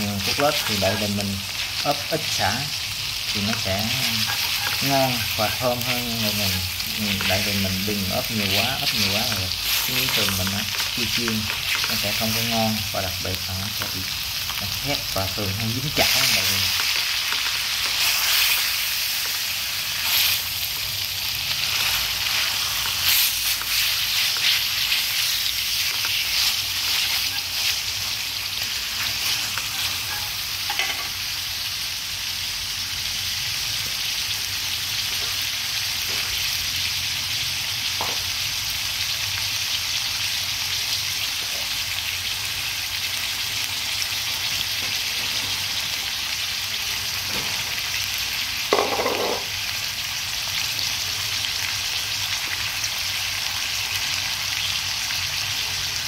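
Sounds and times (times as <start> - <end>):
chopsticks scraping pan: 0.0 - 2.3, 3.3 - 12.6, 15.3 - 20.6, 21.6 - 31.1
oil crackling: 0.0 - 30.3
meat sizzling in hot oil: 0.0 - 56.0.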